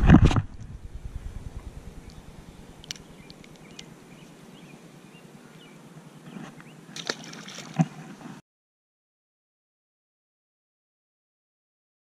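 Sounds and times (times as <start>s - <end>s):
fish splashing into water: 7.0s - 7.8s.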